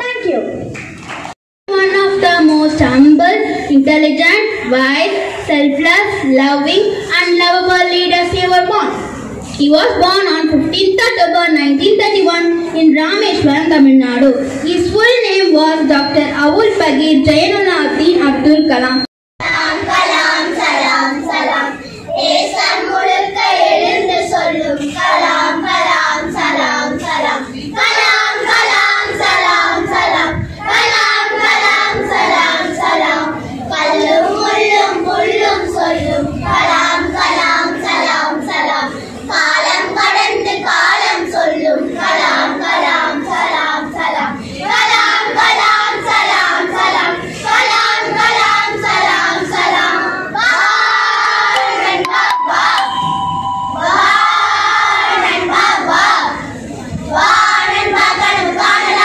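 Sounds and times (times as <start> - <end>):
children singing in chorus: 19.4 - 59.0.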